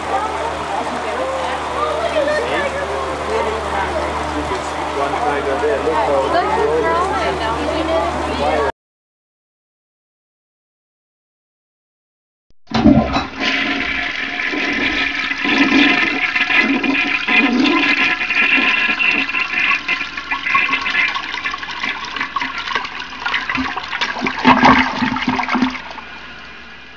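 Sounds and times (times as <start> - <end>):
toilet flushing: 12.7 - 26.9.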